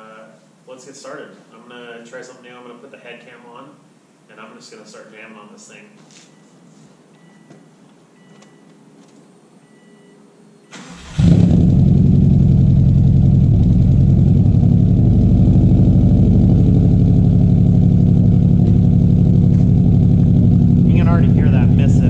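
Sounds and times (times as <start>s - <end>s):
car engine cranking: 10.8s - 22.0s
car engine idling: 11.1s - 22.0s.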